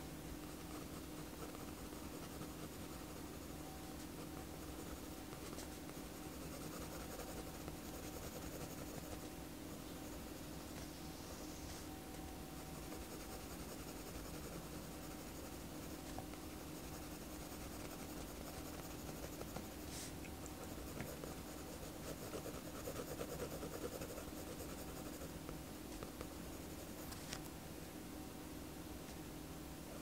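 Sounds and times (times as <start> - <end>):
steady low hum: 0.0 - 30.0
pen scratching on paper: 0.4 - 3.5, 4.1 - 9.2, 12.8 - 19.8, 20.6 - 25.4.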